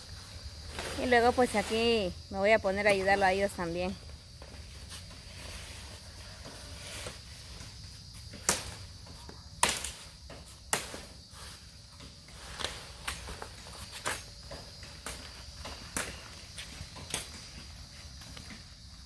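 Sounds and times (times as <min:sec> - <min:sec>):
high insect drone: 0:00.0 - 0:19.0
machete chopping branches: 0:08.3 - 0:08.9, 0:09.6 - 0:11.2.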